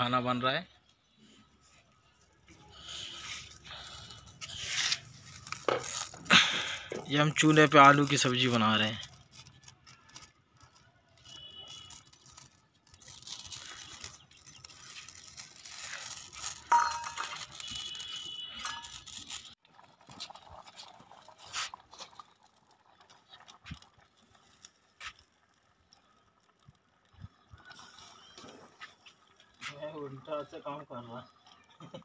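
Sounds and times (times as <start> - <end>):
wood fire crackling: 0.0 - 32.0
curry bubbling: 0.2 - 32.0.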